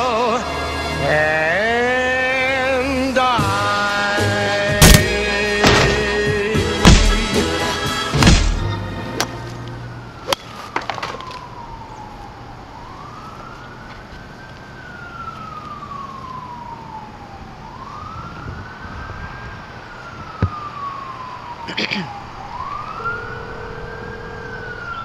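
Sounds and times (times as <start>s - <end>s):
emergency siren wailing: 8.7s - 25.0s.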